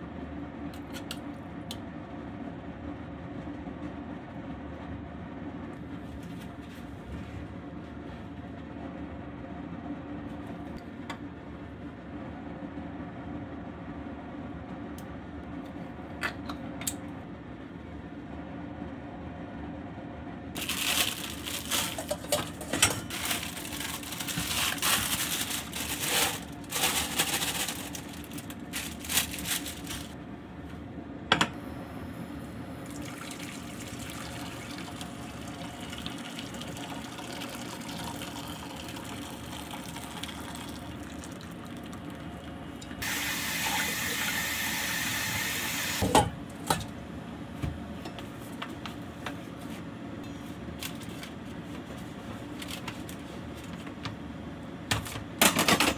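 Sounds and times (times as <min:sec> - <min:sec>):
metal bowl and strainer clattering: 0:21.6 - 0:28.0.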